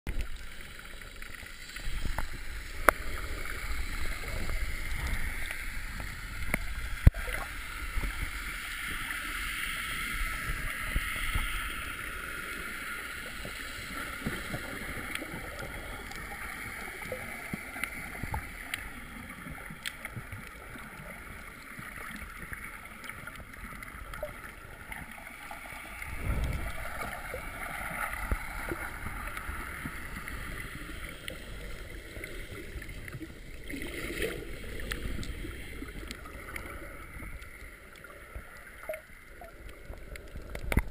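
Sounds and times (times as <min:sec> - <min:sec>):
underwater seawater sloshing: 0:00.1 - 0:40.9
low underwater rumbles: 0:22.4 - 0:40.9.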